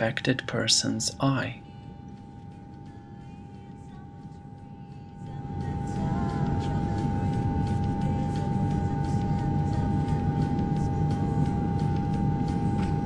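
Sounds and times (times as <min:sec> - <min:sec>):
machine hum with high whine: 0:00.0 - 0:13.0.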